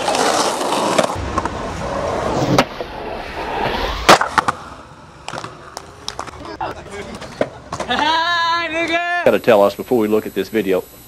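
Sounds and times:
skateboard wheels rolling on concrete: 0.0 - 9.3
skateboard clacking on concrete: 5.2 - 8.2.

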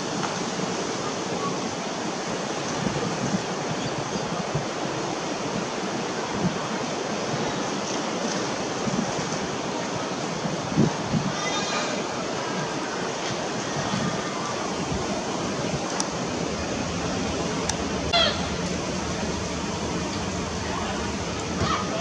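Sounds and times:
wind buffeting microphone: 8.5 - 11.4, 12.0 - 22.0.

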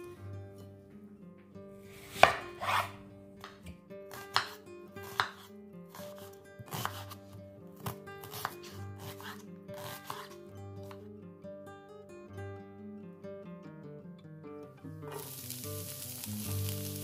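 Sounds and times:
knife chopping on wooden board: 2.1 - 7.2, 7.8 - 11.0.

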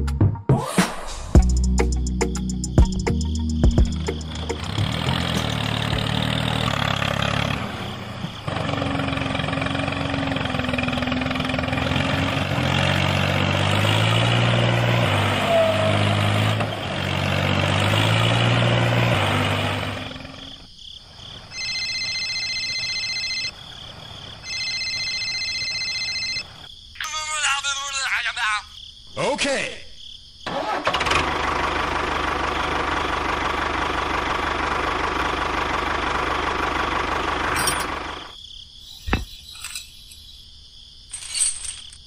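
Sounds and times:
tractor motor humming: 2.3 - 20.7, 30.5 - 38.4.

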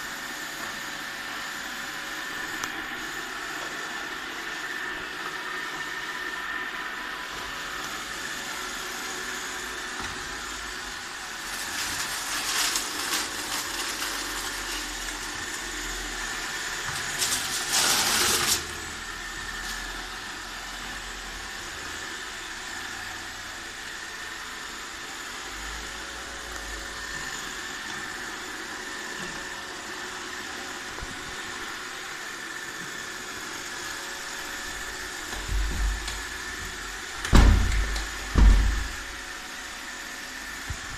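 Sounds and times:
robot vacuum whirring: 0.0 - 40.9.

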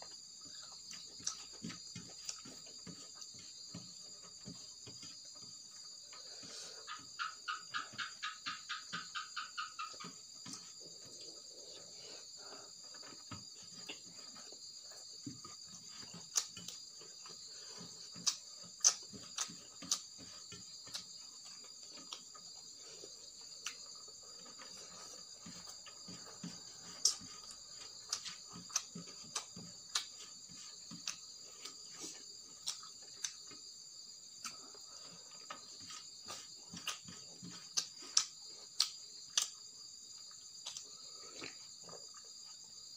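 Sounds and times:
crickets chirring: 0.0 - 42.9
chewing smacks: 40.3 - 42.3.

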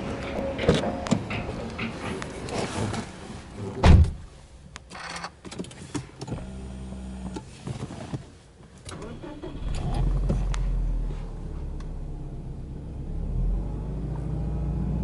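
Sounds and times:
car door shutting with thud: 3.8 - 4.2.

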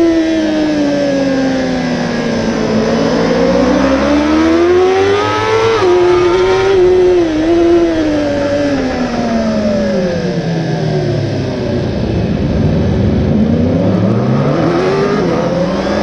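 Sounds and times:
motorcycle engine revving: 0.0 - 16.0
wind and road noise: 0.0 - 16.0.

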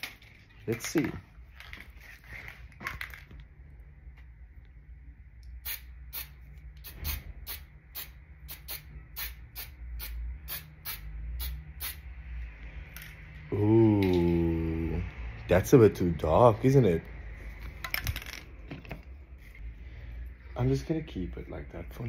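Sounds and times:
aerosol spray paint hissing bursts: 5.6 - 12.0.

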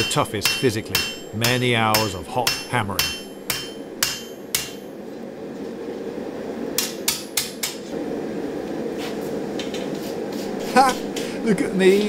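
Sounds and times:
hammer striking metal on anvil: 0.0 - 5.0, 6.8 - 7.8.

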